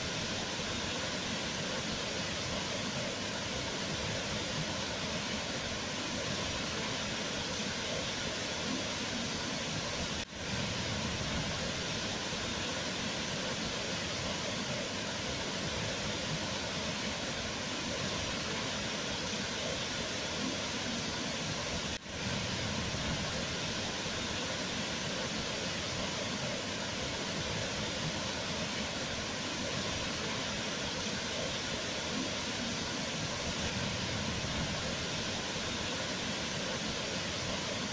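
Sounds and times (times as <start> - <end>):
waterfall rushing: 0.0 - 37.9.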